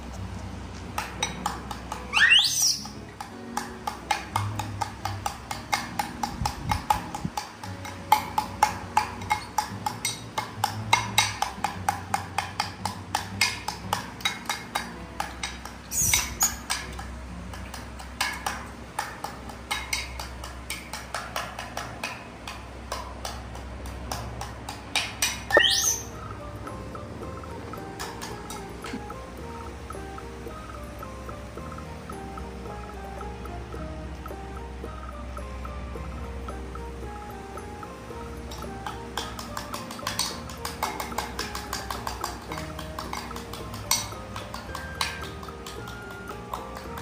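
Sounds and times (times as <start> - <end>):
rapid clicking and tapping: 0.0 - 2.1, 2.8 - 25.6, 26.2 - 35.1, 36.4 - 47.0
baby monkey squealing: 2.1 - 3.0, 15.9 - 16.7, 25.5 - 26.2.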